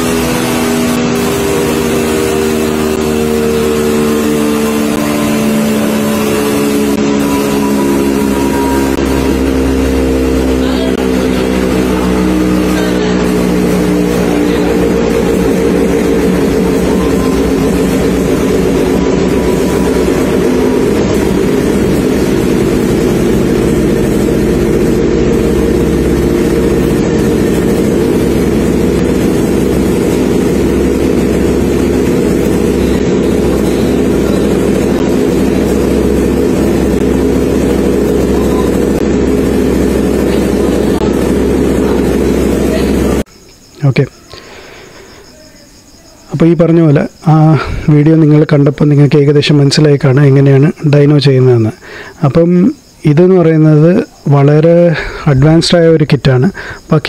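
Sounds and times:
two-stroke motorcycle engine running: 0.0s - 43.4s.

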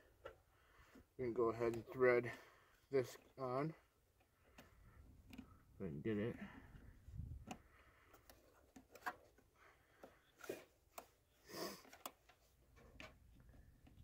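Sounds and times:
small clicks of plastic connectors: 7.4s - 9.2s.

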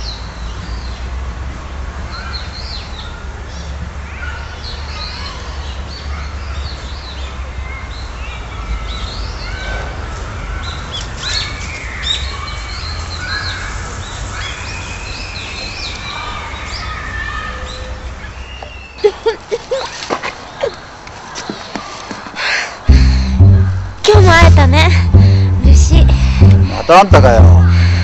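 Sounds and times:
birds chirping: 10.4s - 22.0s
low rumble: 22.9s - 28.0s.

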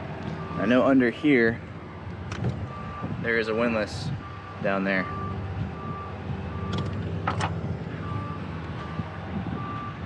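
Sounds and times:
heavy vehicle engine running: 0.0s - 10.0s
reversing alarm beeps: 0.4s - 0.8s, 2.7s - 3.2s, 4.2s - 6.9s, 8.0s - 10.0s.

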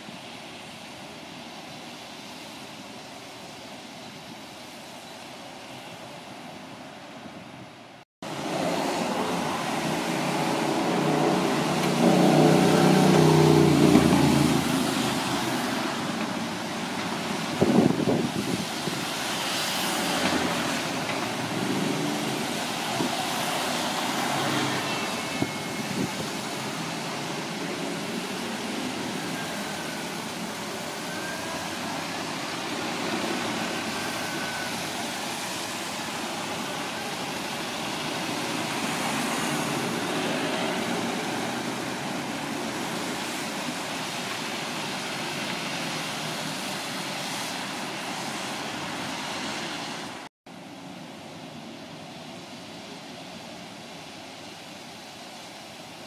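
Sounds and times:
buses and cars passing: 0.0s - 56.0s
tyre hiss on wet road: 8.2s - 56.0s.

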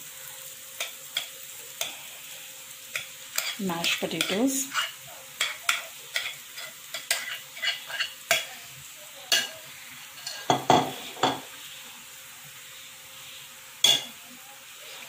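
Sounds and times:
oil sizzling: 0.0s - 15.0s
spatula scraping a frying pan: 0.8s - 8.6s, 9.3s - 12.0s.

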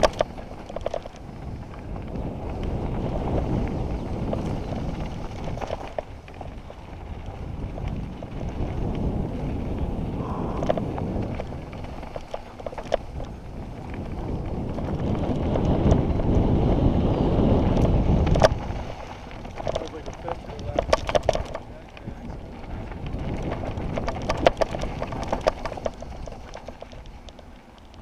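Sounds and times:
tyres rolling over stones: 0.0s - 16.4s, 17.7s - 28.0s
bike rattling: 0.0s - 28.0s
wind buffeting microphone: 0.0s - 28.0s.

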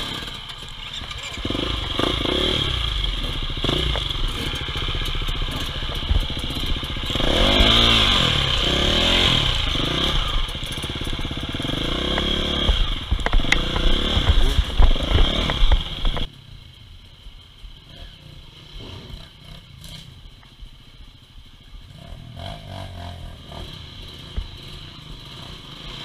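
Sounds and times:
dirt bike engines revving: 0.0s - 16.4s, 17.6s - 26.0s.

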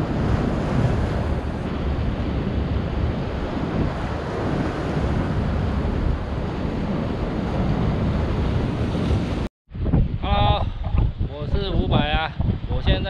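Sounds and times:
rough surf breaking on rocks: 0.0s - 9.5s
wind buffeting microphone: 0.0s - 13.0s.

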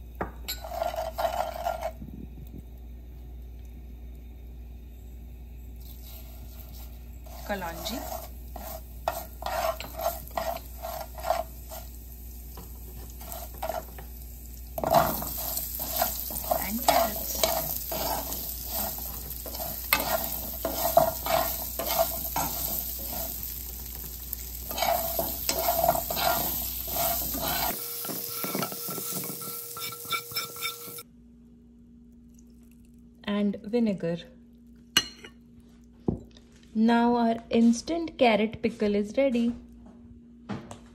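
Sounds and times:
metal spoon scraping a frying pan: 0.5s - 2.0s, 5.8s - 14.1s, 14.8s - 31.0s
spatula scraping a pan: 0.5s - 2.0s, 5.8s - 14.2s, 14.8s - 31.0s
vegetables sizzling in oil: 4.9s - 31.1s.

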